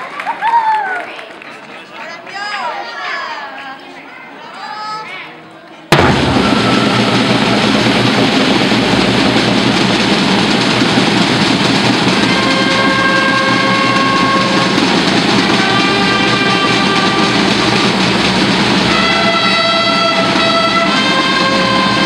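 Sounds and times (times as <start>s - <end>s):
bass drum: 5.9s - 22.0s
brass holding long notes: 5.9s - 22.0s
snare drum roll: 5.9s - 22.0s.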